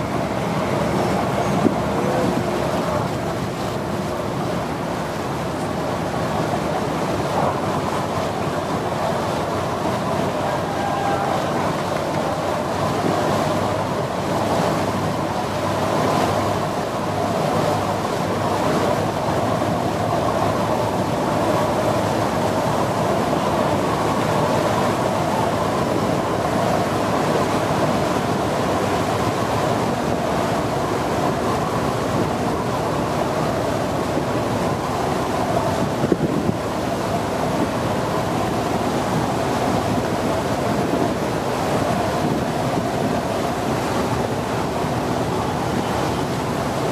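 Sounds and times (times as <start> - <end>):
boat engine running: 0.0 - 46.9
water rushing along a hull: 0.0 - 46.9
wind on the microphone: 18.7 - 46.9.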